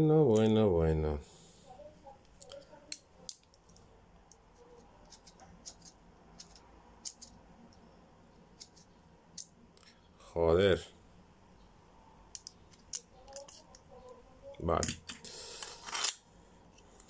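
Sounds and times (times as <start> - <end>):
small clicks and scratches of handling: 2.2 - 7.8, 8.6 - 10.0, 12.3 - 14.2.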